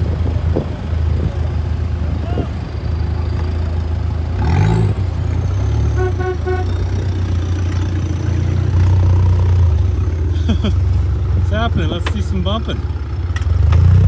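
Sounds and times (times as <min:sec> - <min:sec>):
car engines revving: 0:00.0 - 0:14.0
car horn beeps: 0:05.8 - 0:07.0.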